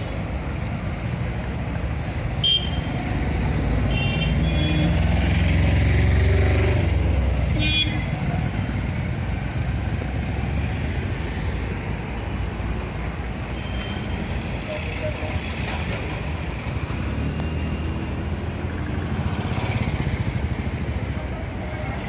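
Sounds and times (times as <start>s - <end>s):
street traffic: 0.0s - 22.0s.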